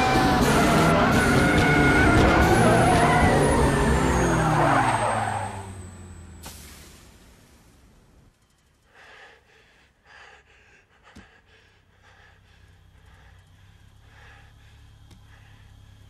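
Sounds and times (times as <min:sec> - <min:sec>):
low steady hum: 0:07.3 - 0:16.0
man breathing heavily: 0:08.8 - 0:16.0.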